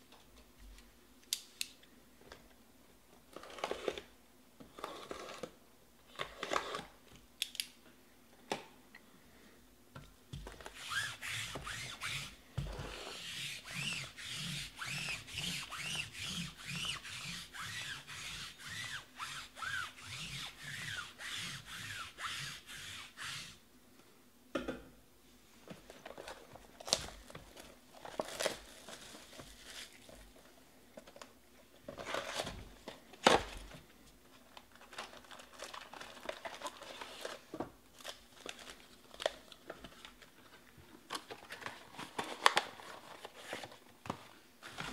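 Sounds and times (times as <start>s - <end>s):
back-and-forth rubbing strokes: 10.7s - 23.6s
hands rubbing cardboard boxes: 10.7s - 23.6s.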